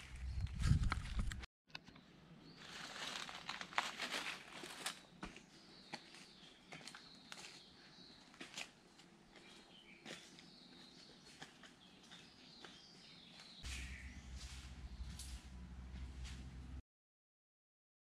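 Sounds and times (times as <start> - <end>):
footsteps on dry leaves: 2.5 - 7.7, 9.4 - 16.8.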